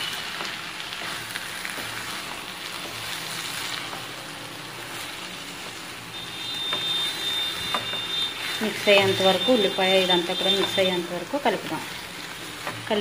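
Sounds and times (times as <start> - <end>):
food sizzling in a pan: 0.0 - 13.0
spatula scraping a pan: 6.4 - 11.0.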